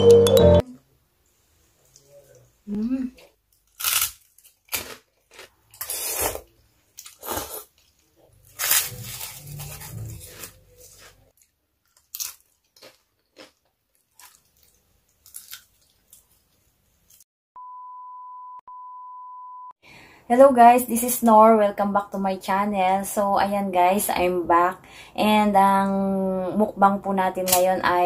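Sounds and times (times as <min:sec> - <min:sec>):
crunchy chewing: 0:03.5 - 0:17.2.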